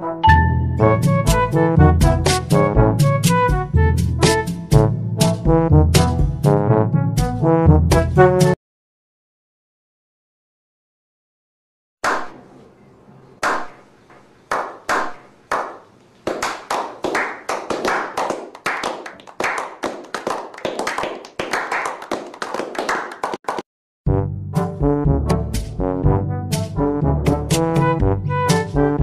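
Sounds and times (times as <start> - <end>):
brass music: 0.0 - 8.6, 24.1 - 29.0
men clapping: 14.5 - 23.6.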